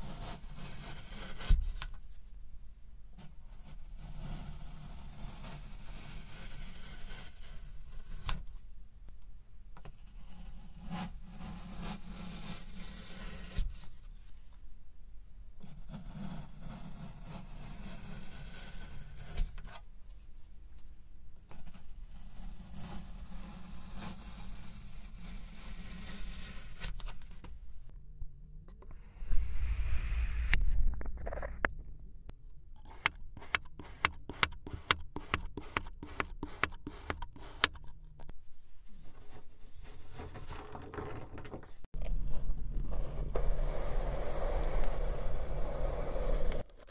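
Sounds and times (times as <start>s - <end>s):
peeler scraping sand: 32.8s - 37.9s.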